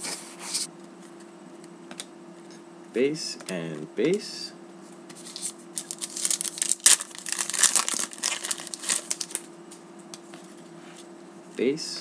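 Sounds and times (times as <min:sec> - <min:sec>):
plastic wrapper crinkling and tearing: 0:05.3 - 0:09.5.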